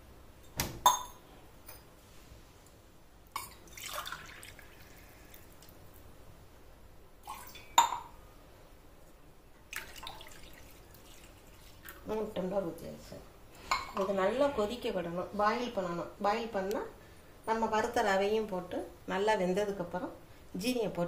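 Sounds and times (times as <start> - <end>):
water pouring and splashing: 3.4 - 5.8, 9.7 - 12.1.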